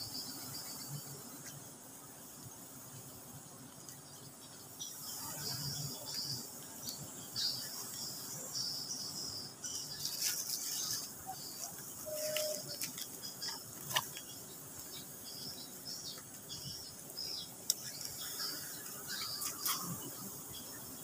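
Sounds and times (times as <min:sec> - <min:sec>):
high-pitched insect trilling: 0:04.8 - 0:21.0
brief rustles and crackles: 0:10.0 - 0:14.3.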